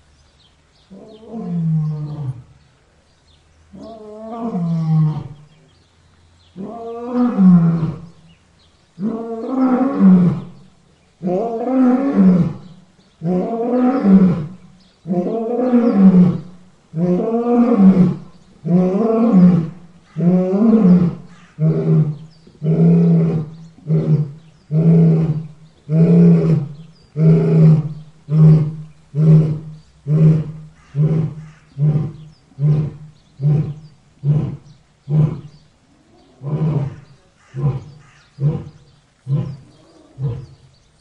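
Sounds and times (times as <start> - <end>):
lion roaring: 11.2 - 40.6.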